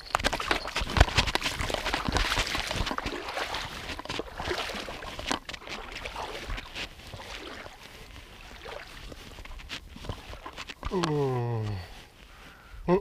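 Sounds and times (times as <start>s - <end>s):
water noise: 0.0s - 12.5s
fishing line rustling: 0.0s - 12.6s.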